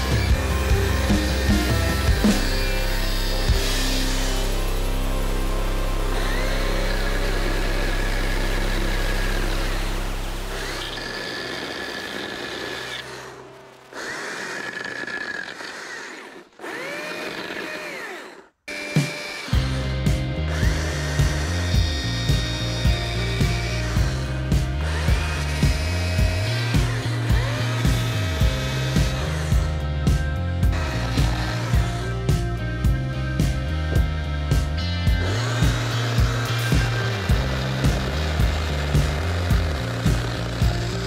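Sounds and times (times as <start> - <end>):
background music with beat: 0.0 - 10.3, 19.0 - 41.0
cordless chainsaw whining: 0.0 - 41.0.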